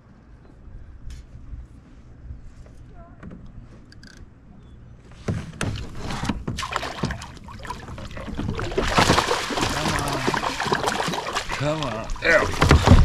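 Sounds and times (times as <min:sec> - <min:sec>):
fish splashing at the surface: 0:06.6 - 0:13.0.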